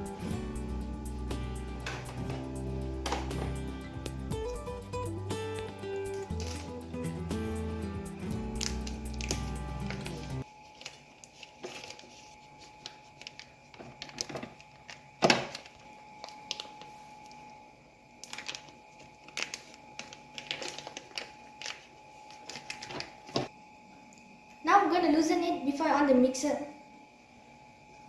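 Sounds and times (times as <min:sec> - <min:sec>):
faint hum: 0:00.0 - 0:28.0
plastic wrapper crinkling: 0:06.1 - 0:06.8, 0:08.4 - 0:17.0, 0:18.2 - 0:23.5.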